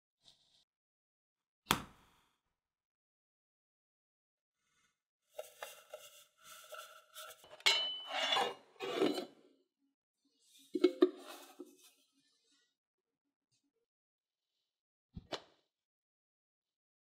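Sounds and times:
metal lid scraping along rails: 7.3s - 9.4s.

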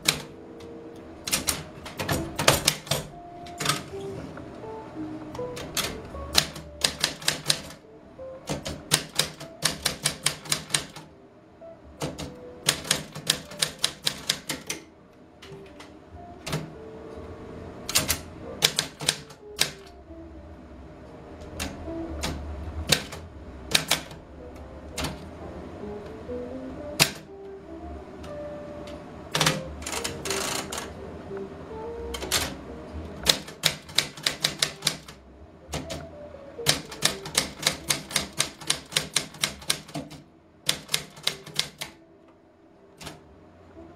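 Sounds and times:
typewriter keystrokes clacking: 0.0s - 4.0s, 5.3s - 7.8s, 8.4s - 11.1s, 12.0s - 16.7s, 17.9s - 20.0s, 21.4s - 24.2s, 25.0s - 25.2s, 27.0s - 27.3s, 29.3s - 31.0s, 32.1s - 32.6s, 33.2s - 36.0s, 36.6s - 42.0s, 43.0s - 43.2s
soft music: 0.0s - 43.9s.

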